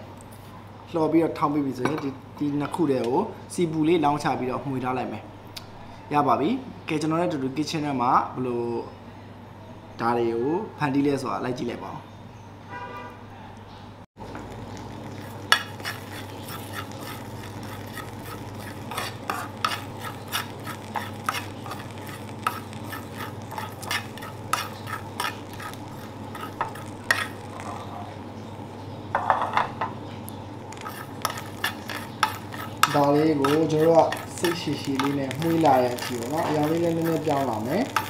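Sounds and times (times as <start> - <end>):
light oil sizzle: 14.2 - 38.0.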